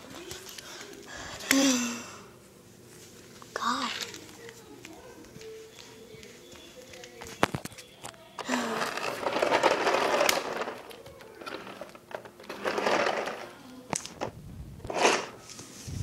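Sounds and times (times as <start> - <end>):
plastic toy rustling and scraping: 6.9 - 16.0
sharp plastic scrape: 14.8 - 15.6.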